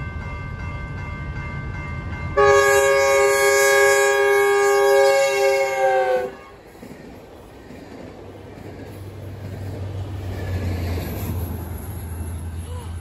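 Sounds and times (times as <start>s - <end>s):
diesel locomotive rumble: 0.0s - 13.0s
train passing on rails: 0.0s - 13.0s
train horn: 2.4s - 6.6s.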